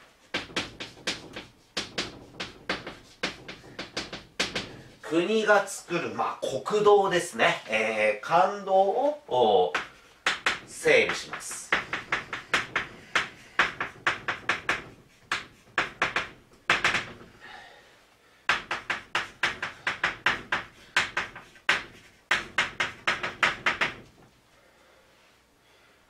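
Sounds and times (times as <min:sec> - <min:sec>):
chalk tapping and scratching: 0:00.0 - 0:05.1, 0:09.7 - 0:17.3, 0:18.5 - 0:24.3.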